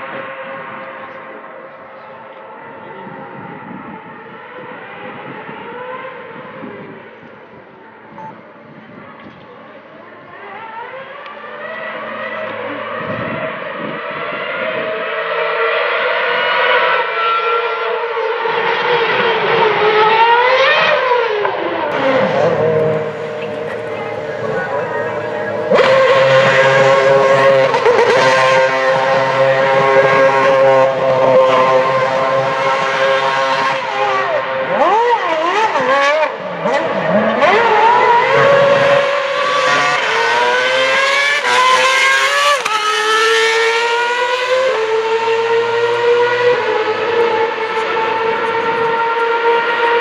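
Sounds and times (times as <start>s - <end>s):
racing car engine revving: 10.3s - 50.0s.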